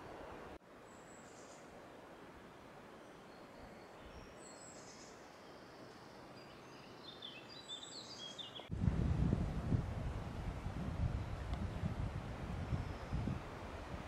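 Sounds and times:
faint background hiss: 0.0s - 14.0s
small birds chirping: 2.9s - 8.7s
wind rush on microphone: 8.7s - 14.0s.

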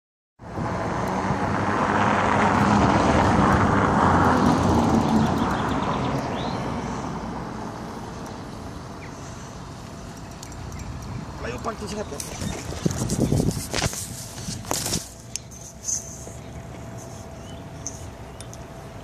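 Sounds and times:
passing vehicle engine: 0.4s - 10.4s.

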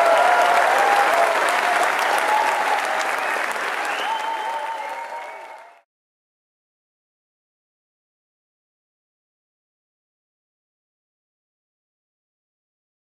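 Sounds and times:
audience applauding and cheering: 0.0s - 5.9s.

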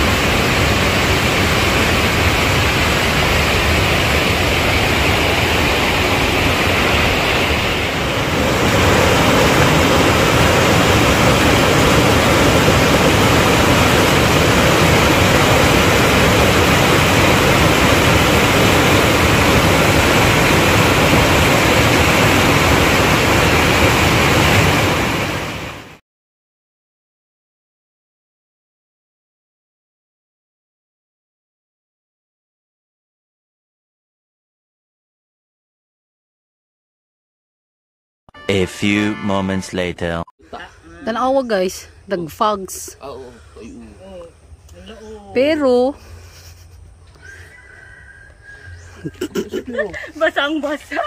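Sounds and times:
water rushing: 0.0s - 26.0s.

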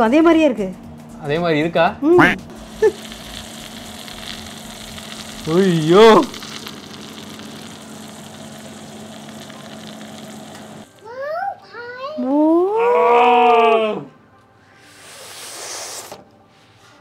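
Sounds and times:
chicken sizzling: 2.5s - 11.0s.

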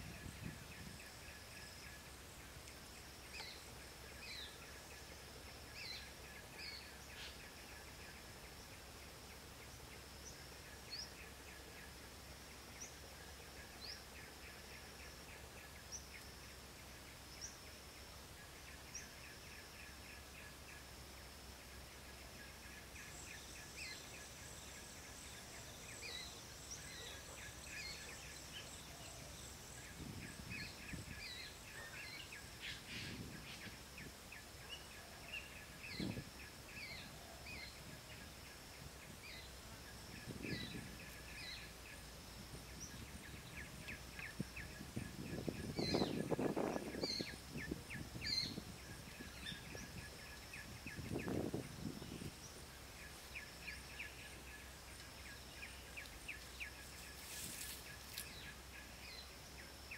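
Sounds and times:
birds chirping: 21.7s - 59.8s.

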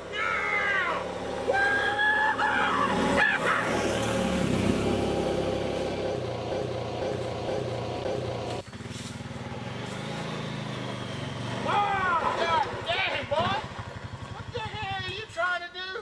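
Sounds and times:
high wailing cries: 0.0s - 4.1s
quad bike engine running: 0.0s - 15.7s.

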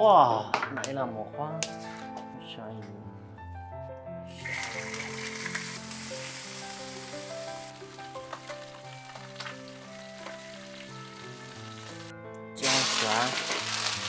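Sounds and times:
background music: 0.0s - 14.0s
fish sizzling in hot oil: 4.3s - 14.0s.

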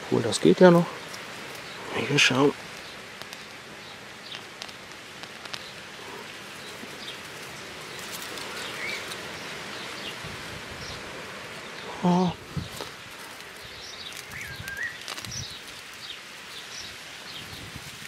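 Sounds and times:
steady hiss: 0.0s - 18.0s
faint bird chirps: 13.7s - 15.6s.

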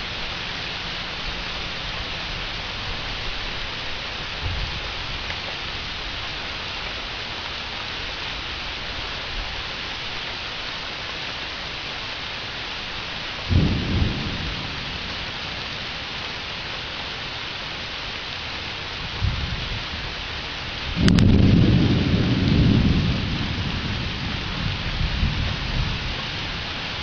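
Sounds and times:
steady rain hiss: 0.0s - 27.0s
low rumble of thunder: 13.4s - 16.5s, 19.0s - 27.0s.

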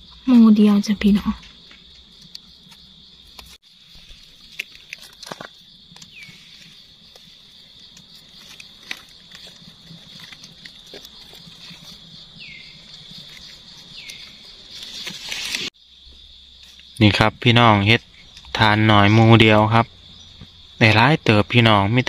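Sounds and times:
high insect drone: 0.0s - 22.0s
rustling of dry leaves: 0.1s - 17.0s.

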